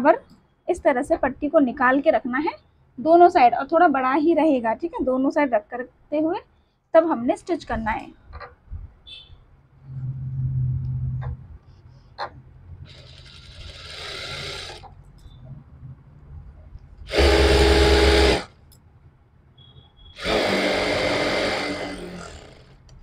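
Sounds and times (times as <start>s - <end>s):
sewing machine stitching fabric: 12.8s - 15.0s, 17.1s - 18.5s, 20.2s - 22.9s.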